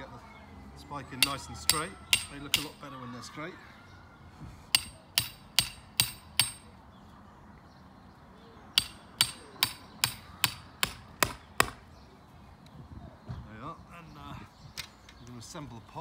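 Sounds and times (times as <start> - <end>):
hammer striking metal spike: 1.2 - 2.8, 4.7 - 6.7, 8.8 - 11.8.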